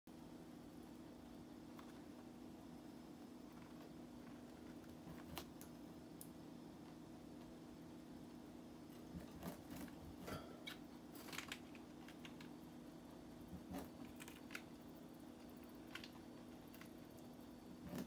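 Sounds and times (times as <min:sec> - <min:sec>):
low steady hum: 0:00.1 - 0:18.0
birds pecking at lettuce: 0:03.2 - 0:07.6, 0:08.2 - 0:18.0.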